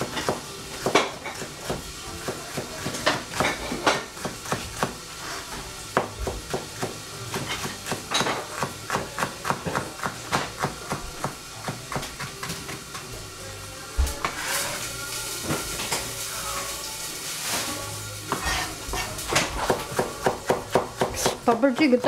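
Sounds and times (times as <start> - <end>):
knife chopping on cutting board: 0.0 - 5.0, 5.9 - 13.0, 18.3 - 22.0.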